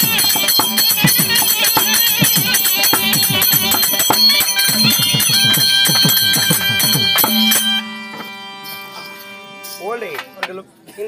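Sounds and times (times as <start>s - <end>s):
drum beating with sliding bass: 0.0s - 7.7s
bell anklets jingling: 0.0s - 10.5s
wind instrument melody and drone: 0.0s - 10.5s.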